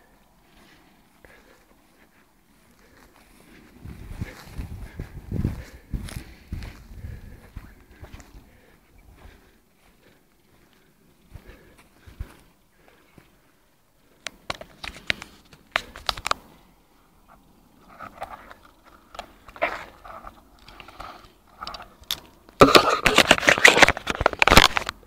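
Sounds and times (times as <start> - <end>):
rustling crackle on microphone: 0.1 - 13.4, 14.0 - 25.0
phone handling clicks and scrapes: 14.2 - 16.5, 17.8 - 25.0.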